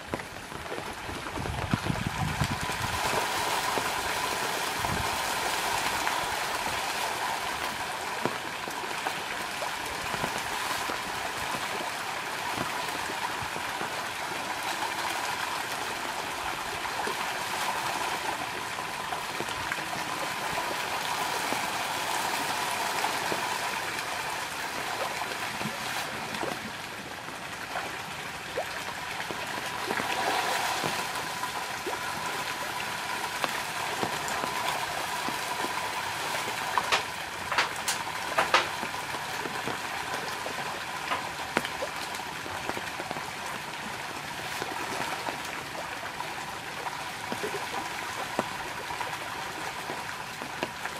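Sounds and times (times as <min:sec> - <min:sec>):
fish splashing at water surface: 0:27.8 - 0:46.2.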